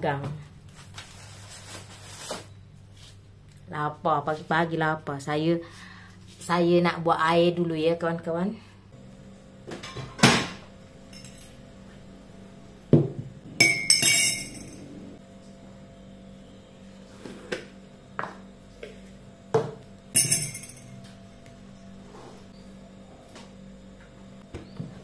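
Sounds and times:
glass ringing ping: 13.6s - 14.8s
glassware clinking and knocking: 13.6s - 14.8s, 20.2s - 21.0s.

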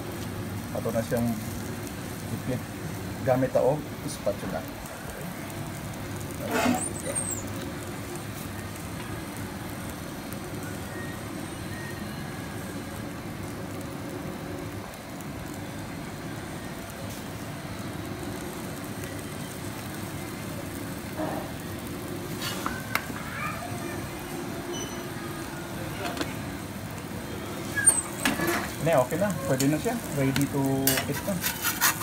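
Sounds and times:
kitchen machinery hum: 0.0s - 32.0s
grill lid squeak: 6.4s - 7.6s, 22.4s - 22.9s, 24.7s - 25.2s, 27.6s - 32.0s
grill lid shutting with clank: 28.0s - 28.8s.

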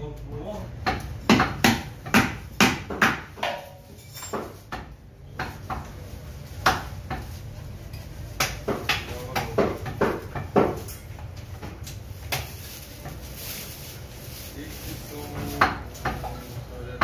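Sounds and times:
cleaver chopping on wooden block: 0.8s - 3.6s.

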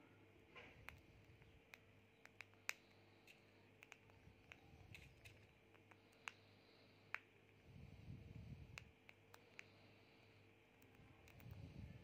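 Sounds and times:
faint steady hum: 0.0s - 12.0s
bird pecking seeds clicks: 0.8s - 6.4s.

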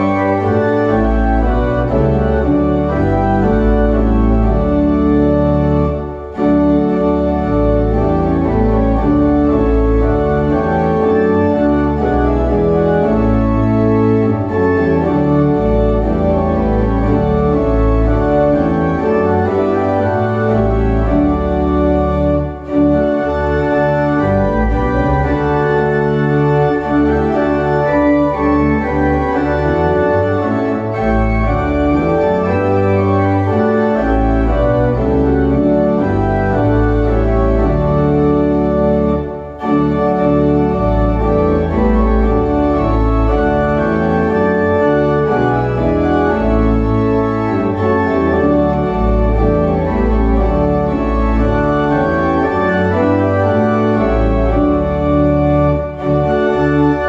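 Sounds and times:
church organ playing a hymn: 0.0s - 57.0s.

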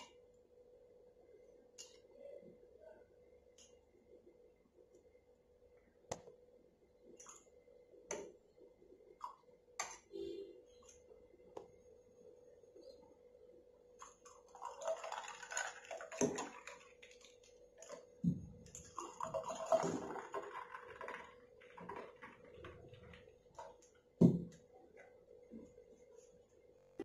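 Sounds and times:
faint steady hum: 0.0s - 27.0s
milk pouring into glass: 14.0s - 23.7s.

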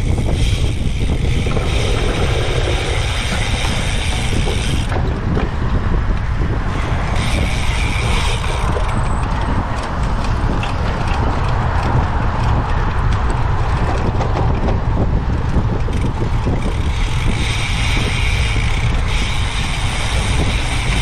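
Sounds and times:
bike drivetrain clicking: 0.0s - 21.0s
bike rattling over rough ground: 0.0s - 21.0s
wind rumble on microphone: 0.0s - 21.0s.

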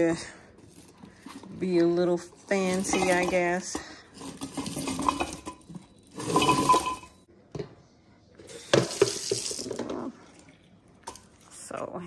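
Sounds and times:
detergent pods clinking into glass jar: 2.5s - 7.2s, 8.8s - 9.8s.

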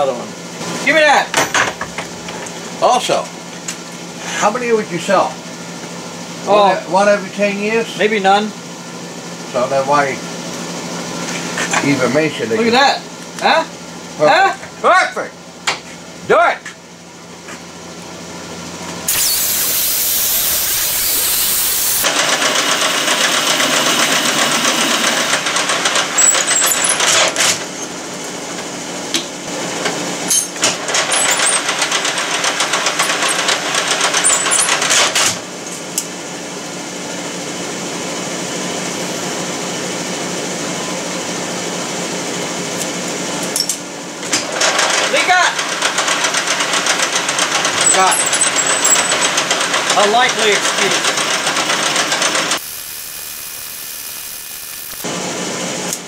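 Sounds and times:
metal lathe whirring: 19.1s - 27.1s, 50.7s - 55.2s
cut-off saw cutting steel: 19.1s - 27.4s, 50.8s - 55.1s.

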